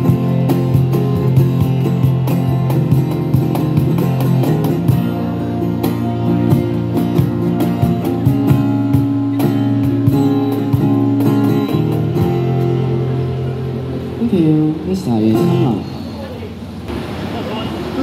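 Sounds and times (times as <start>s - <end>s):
steady beat: 0.0s - 12.9s
acoustic guitar strumming: 0.0s - 16.9s.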